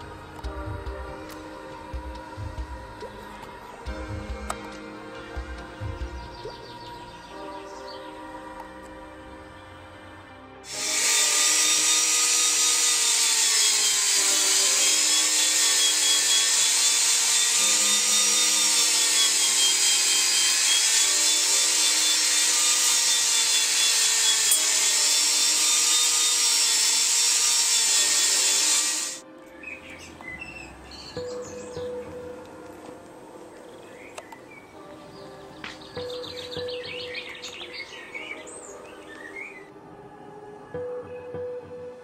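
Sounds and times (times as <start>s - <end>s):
grinder sanding wood: 10.7s - 29.2s.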